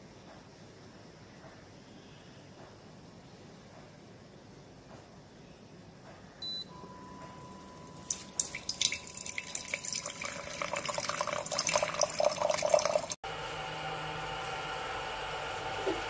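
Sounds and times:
faint steady whine: 0:00.0 - 0:16.0
short beep: 0:06.4 - 0:08.4
water pouring into mug: 0:08.0 - 0:13.2.

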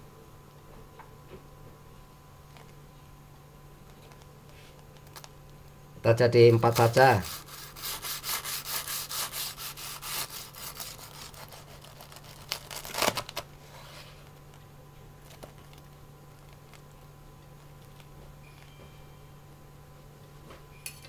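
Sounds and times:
knife sawing through crisp crust: 0:06.7 - 0:14.0
knife scrape: 0:06.9 - 0:12.4.

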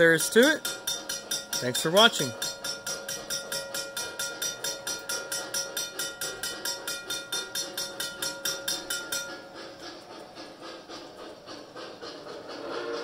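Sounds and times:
railroad crossing bell ringing: 0:00.0 - 0:09.6
model train running: 0:00.0 - 0:13.0.

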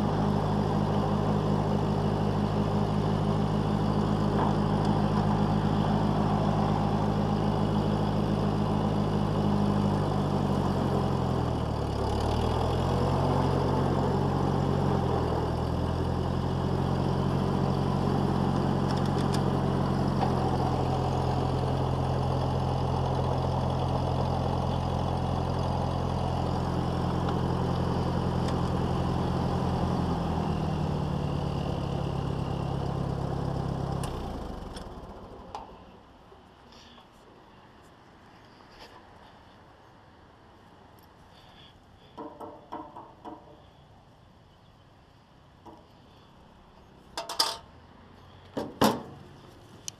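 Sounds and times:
tractor engine running: 0:00.0 - 0:36.4, 0:45.5 - 0:47.7.

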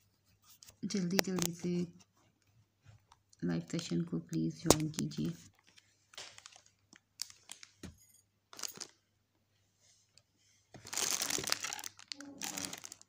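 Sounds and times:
packaging crinkling and rustling: 0:04.7 - 0:07.9, 0:08.5 - 0:09.0, 0:10.8 - 0:13.0.

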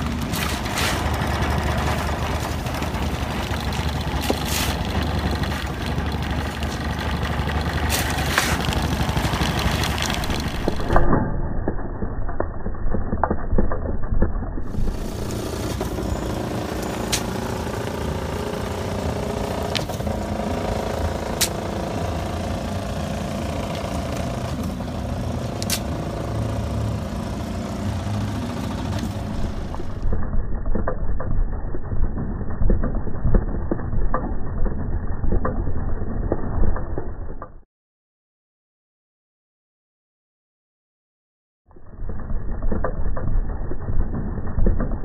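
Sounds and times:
motorized soil sifter running: 0:00.0 - 0:11.1, 0:14.6 - 0:33.1
outdoor hum: 0:00.0 - 0:37.6, 0:41.7 - 0:45.0
knocks of shovelled soil: 0:00.2 - 0:05.7, 0:06.3 - 0:10.8
soil pouring through screen: 0:00.3 - 0:10.9.

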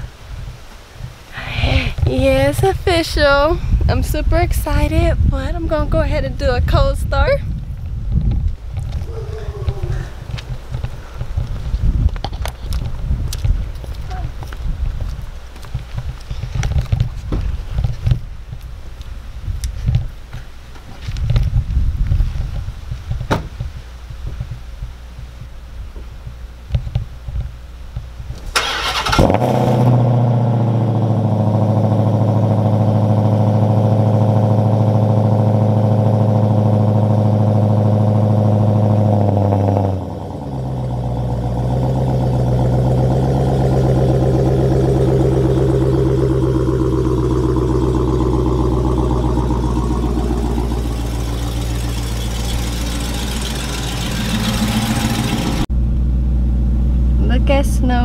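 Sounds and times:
car engine starting and idling: 0:27.5 - 0:58.0.

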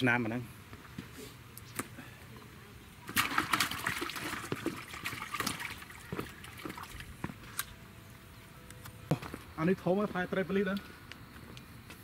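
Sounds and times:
fish splashing in shallow water: 0:03.1 - 0:07.1.

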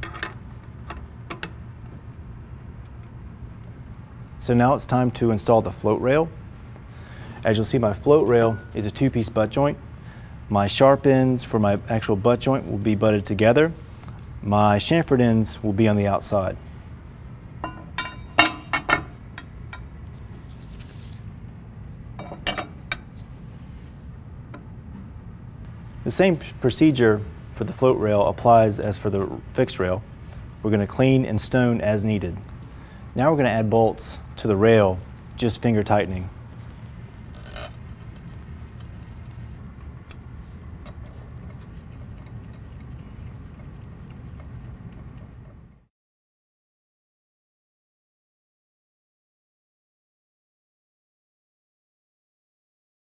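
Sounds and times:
steady low hum: 0:00.0 - 0:45.9
steel rails clinking on metal: 0:17.6 - 0:19.9.

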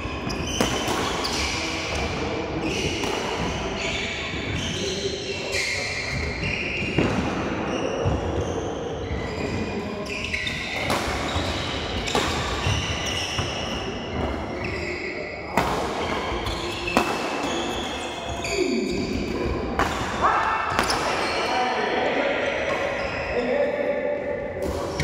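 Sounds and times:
court background noise: 0:00.0 - 0:25.0
rackets hitting shuttlecock: 0:00.3 - 0:03.6, 0:15.5 - 0:18.0, 0:19.0 - 0:21.4.

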